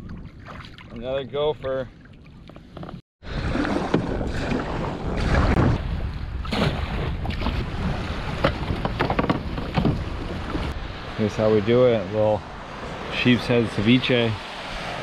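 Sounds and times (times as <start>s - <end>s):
paddle splashes: 0.0s - 10.8s
rushing water around hull: 0.0s - 15.0s
wind buffeting microphone: 3.3s - 15.0s.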